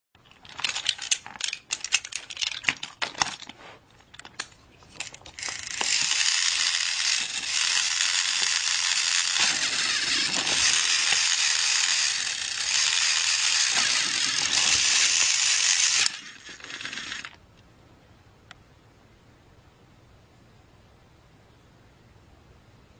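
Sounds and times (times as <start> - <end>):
clicks and rattles: 0.2 - 17.4
toy train motor and gears running: 0.4 - 3.5, 5.0 - 17.4
faint whir: 3.3 - 22.9.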